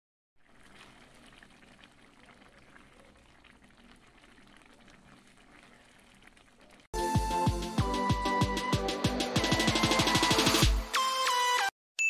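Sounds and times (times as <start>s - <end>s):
soup simmering in a pan: 0.4s - 6.9s.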